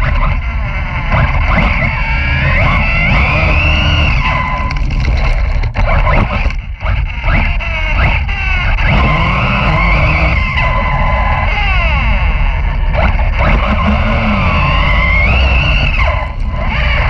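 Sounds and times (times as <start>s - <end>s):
electric motor whine: 0.0s - 17.0s
tyres and wind rumble: 0.0s - 17.0s.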